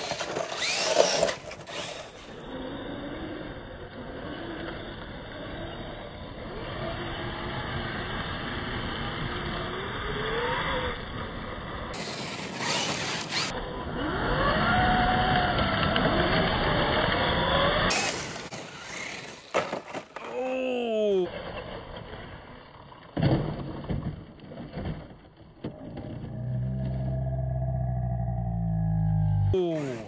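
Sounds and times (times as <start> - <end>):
electric motors whining: 0.0 - 19.5, 26.3 - 30.0.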